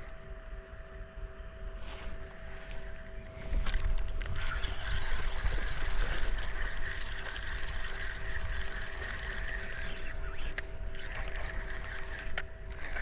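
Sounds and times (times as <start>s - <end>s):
fishing reel whirring and clicking: 2.8s - 13.0s.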